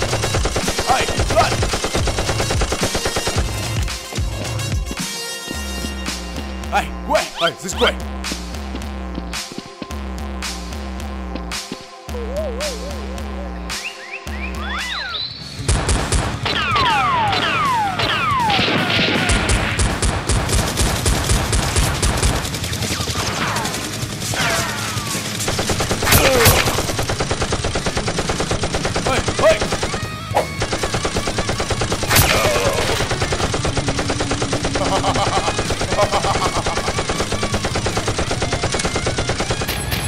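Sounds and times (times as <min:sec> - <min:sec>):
automatic gunfire sound effects: 0:00.0 - 0:03.7, 0:15.6 - 0:40.0.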